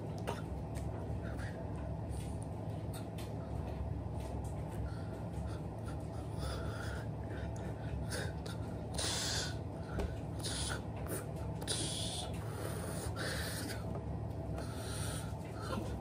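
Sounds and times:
low room hum: 0.0s - 16.0s
hissy breaths: 4.7s - 13.9s.

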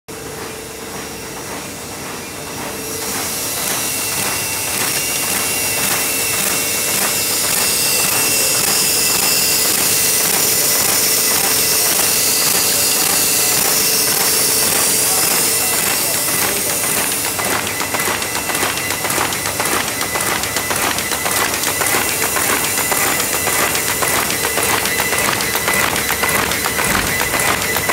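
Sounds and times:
folding machine rhythmic clatter: 0.1s - 27.9s
machine hum: 0.1s - 27.9s
loud air hiss: 2.8s - 19.0s.

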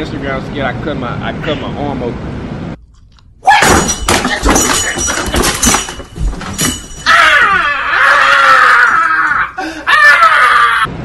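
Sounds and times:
lamp crashing with thuds: 3.6s - 7.1s
glass breaking: 3.6s - 7.2s
person screaming: 7.0s - 10.9s.

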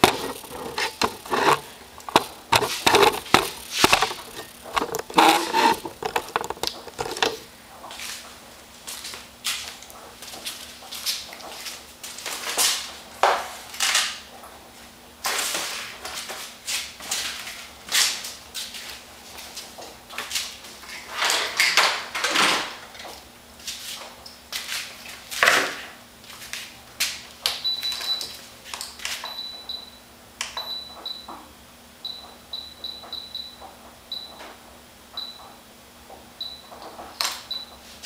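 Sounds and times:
knocks and clatter at workbench: 0.0s - 7.4s.

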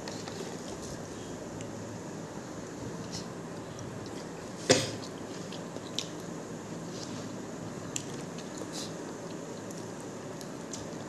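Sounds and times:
chewing: 5.0s - 6.3s.

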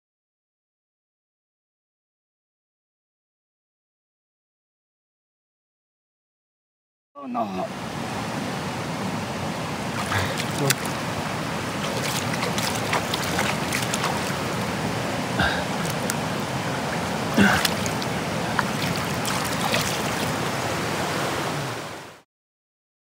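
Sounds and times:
river water rushing over rocks: 7.4s - 22.2s
fish splashing: 9.9s - 21.0s.

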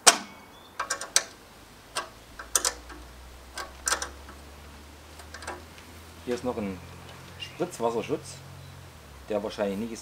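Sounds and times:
metal clicks and knocks: 0.0s - 5.9s.

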